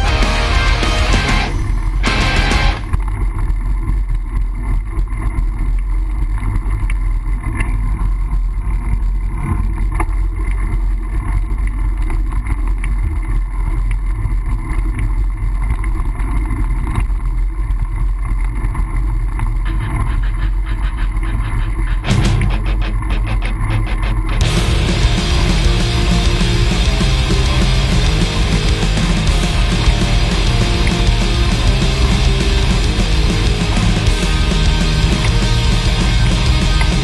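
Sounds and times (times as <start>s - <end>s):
road noise: 19.7s - 37.0s.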